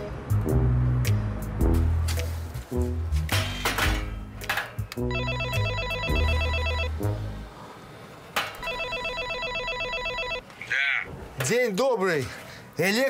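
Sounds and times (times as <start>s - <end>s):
music with heavy bass beat: 0.0s - 3.4s
intercom trilling call tone: 5.1s - 6.9s, 8.6s - 10.4s.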